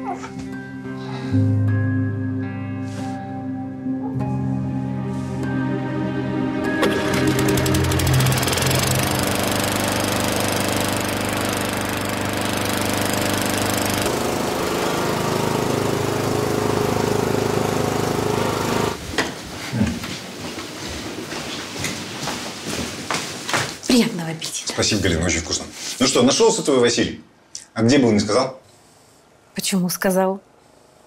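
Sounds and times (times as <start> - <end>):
mechanical drone with fast rattle: 6.8 - 19.0.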